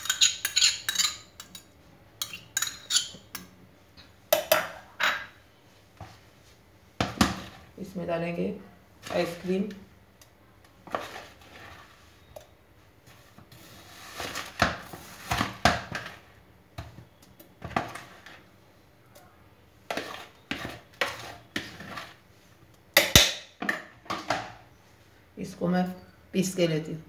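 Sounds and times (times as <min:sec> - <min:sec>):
spoon scraping ice cream: 0:00.0 - 0:03.4, 0:19.9 - 0:22.2.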